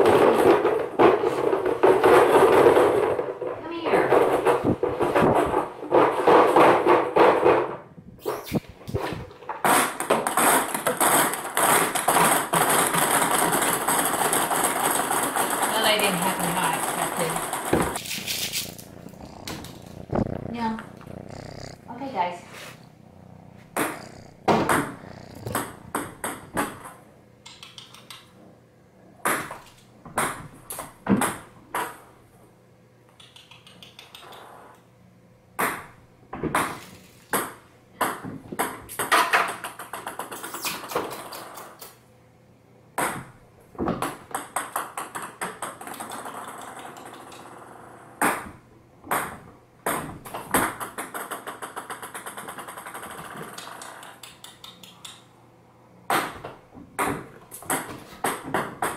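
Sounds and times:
ping pong balls bouncing on floor: 0:35.6 - 0:40.5, 0:43.0 - 0:54.2, 0:56.1 - 0:58.9.

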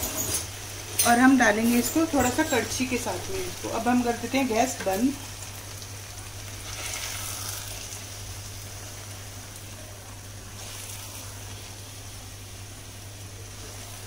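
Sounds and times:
faint sizzling in pan: 0:00.0 - 0:14.0.

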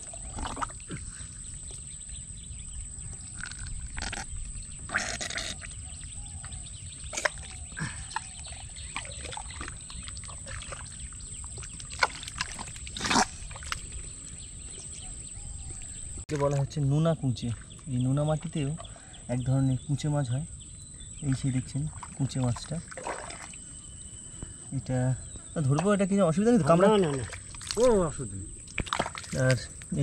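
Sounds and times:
hands squelching in wet mud: 0:00.0 - 0:01.9, 0:03.2 - 0:16.6, 0:21.4 - 0:23.6, 0:26.7 - 0:30.0.

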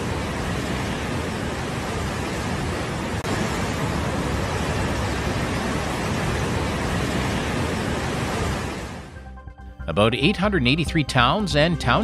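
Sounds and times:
floodwater rushing: 0:00.0 - 0:09.2.

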